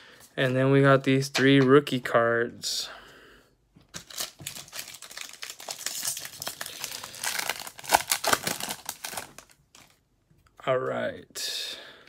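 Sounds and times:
wrapper crinkling and tearing: 3.9 - 10.0.

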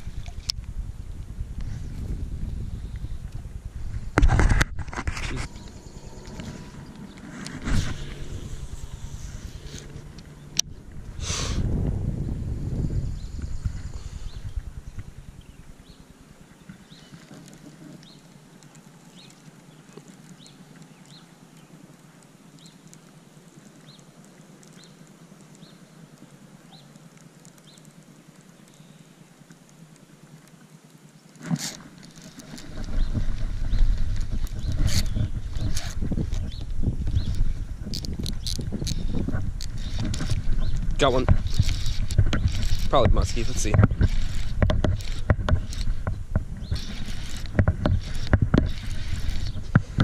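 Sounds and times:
handling noise of rod and reel: 0.0 - 50.0
faint ticks: 15.9 - 50.0.

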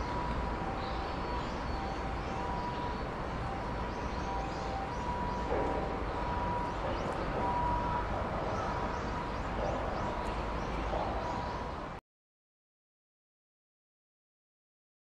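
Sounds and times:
faint distant calls: 0.0 - 12.0.

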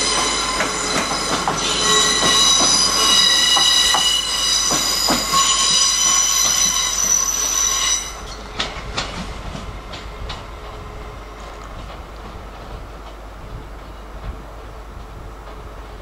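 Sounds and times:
train wheels squealing on rails: 0.0 - 14.7
wheels clicking over rail joints: 11.4 - 15.8.

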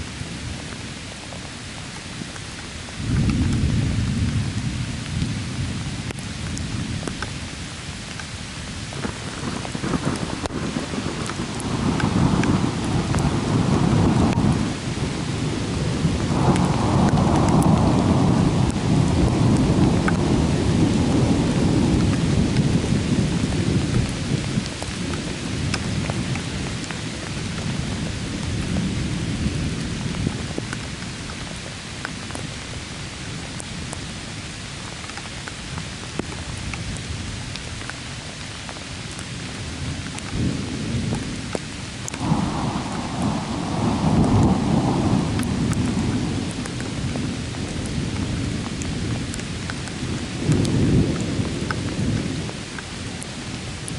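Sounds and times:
steady rain: 0.0 - 53.9
thunder rumbling: 8.9 - 30.8, 39.5 - 53.9.

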